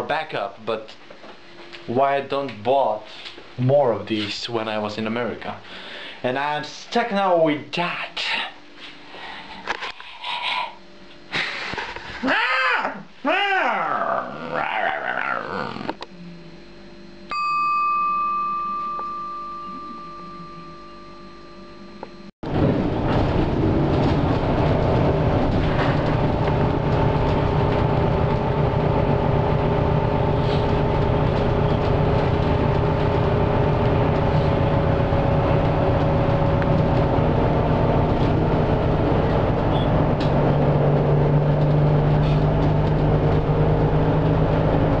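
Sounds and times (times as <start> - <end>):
low hum: 14.2 - 45.0
vehicle road and engine rumble: 22.4 - 45.0.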